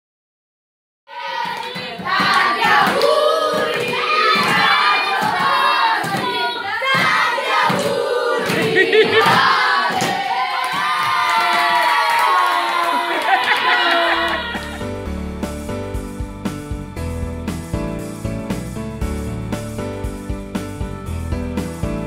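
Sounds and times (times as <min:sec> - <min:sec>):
boys singing and shouting: 0:01.1 - 0:10.9.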